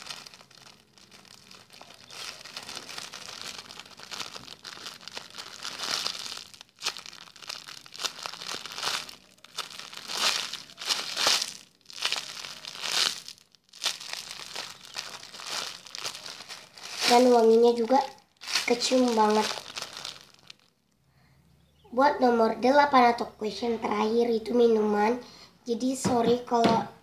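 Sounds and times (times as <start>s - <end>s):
plastic bag crinkling: 0.0s - 20.8s.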